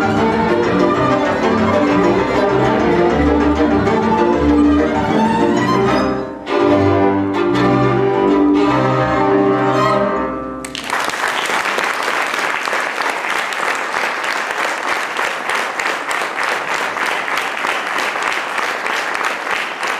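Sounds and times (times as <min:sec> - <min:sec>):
audience applauding: 0:10.6 - 0:19.9.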